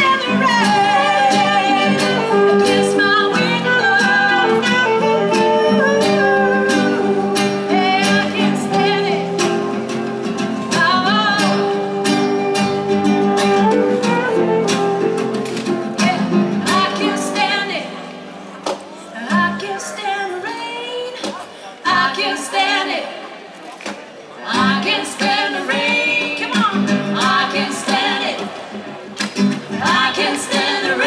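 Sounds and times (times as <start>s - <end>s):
saxophone: 0.0s - 18.0s
acoustic guitar: 0.0s - 31.0s.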